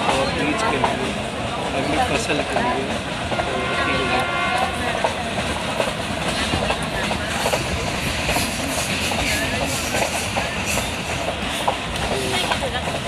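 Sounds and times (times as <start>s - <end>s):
train wheels rumbling on rails: 0.0s - 13.0s
wheels clicking over rail joints: 4.6s - 13.0s.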